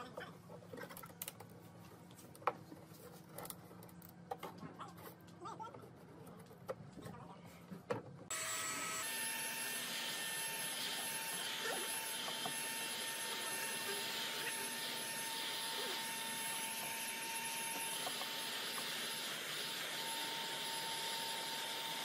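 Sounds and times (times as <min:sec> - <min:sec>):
heat gun blowing air: 0:08.3 - 0:22.0.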